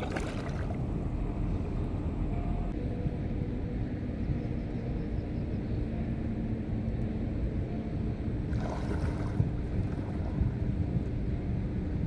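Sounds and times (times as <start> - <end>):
legs wading through water: 0.0 - 0.8, 8.5 - 10.5
low wind rumble on microphone: 0.0 - 12.0.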